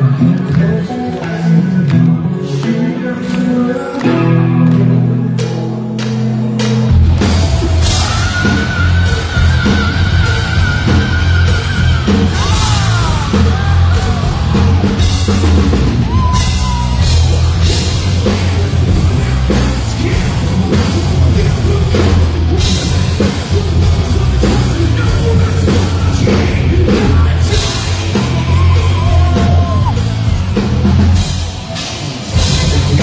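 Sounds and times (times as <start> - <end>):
distorted electric guitars: 0.0 - 33.0
drum kit: 4.0 - 33.0
singer shouting and singing: 7.4 - 15.0, 16.0 - 30.0.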